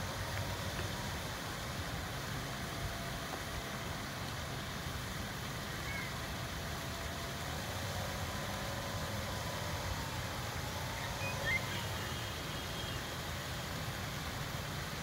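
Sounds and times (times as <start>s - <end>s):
low outdoor rumble and hiss: 0.0s - 15.0s
faint high chirp: 11.0s - 13.1s.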